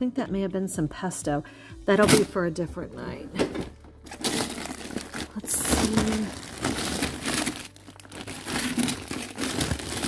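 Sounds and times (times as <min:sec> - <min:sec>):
plastic bags crinkling and rustling: 0:03.4 - 0:10.0.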